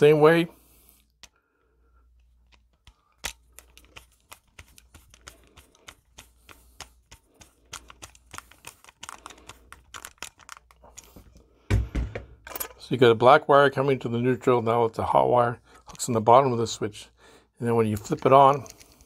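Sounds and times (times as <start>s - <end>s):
screwdriver metal clicks and scrapes: 2.2s - 11.2s, 17.9s - 19.0s.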